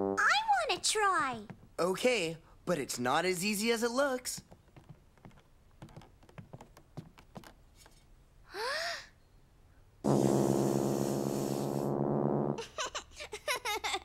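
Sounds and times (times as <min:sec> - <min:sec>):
low raspy tuba buzz: 0:10.0 - 0:12.6.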